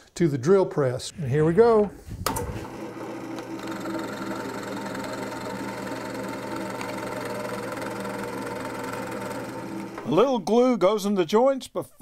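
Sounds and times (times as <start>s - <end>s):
drill press boring wood: 2.3s - 10.2s.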